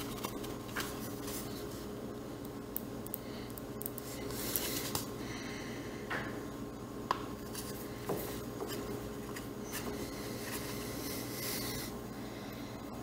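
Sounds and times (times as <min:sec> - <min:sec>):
paper rustling: 0:00.0 - 0:01.9.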